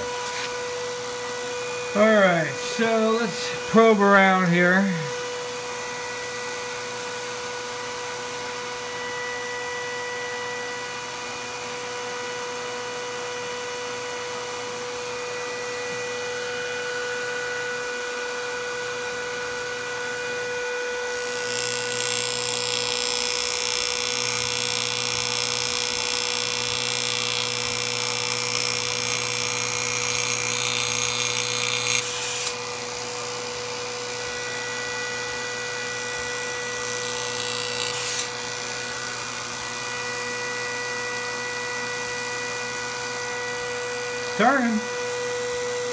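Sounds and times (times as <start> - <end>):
loud hissing buzz: 0.0 - 5.7
electric fan motor hum and whine: 0.0 - 45.9.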